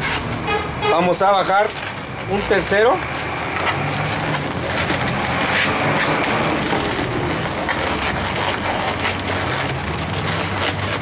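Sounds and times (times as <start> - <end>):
balloon rubbing and squeaking: 0.0 - 11.0.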